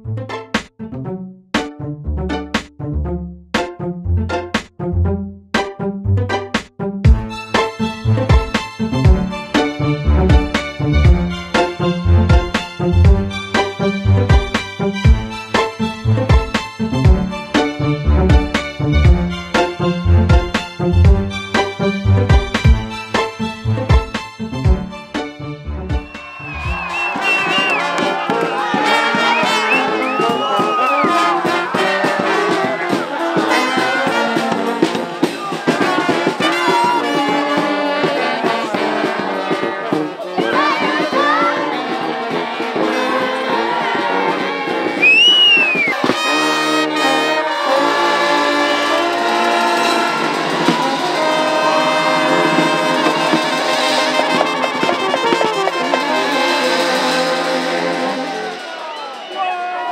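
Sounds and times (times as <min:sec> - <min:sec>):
marching brass band playing: 0:24.7 - 0:59.4.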